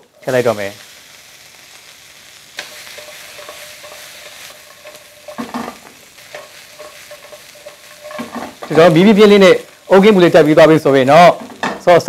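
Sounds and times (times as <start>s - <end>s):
food sizzling in wok: 0.0s - 12.0s
wooden spatula stirring: 2.6s - 8.9s.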